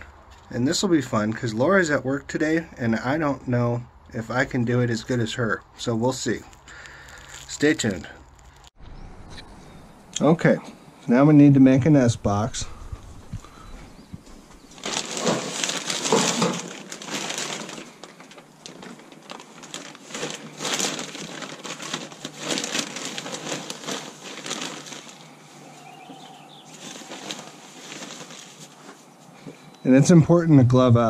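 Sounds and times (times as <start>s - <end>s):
plastic bag rustling: 6.1s - 8.8s, 13.5s - 29.7s.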